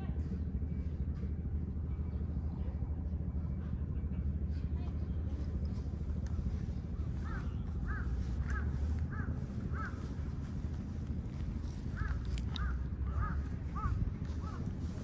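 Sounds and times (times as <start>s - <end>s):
steady low rumble: 0.0s - 15.0s
crow cawing: 7.2s - 10.2s, 11.9s - 14.7s.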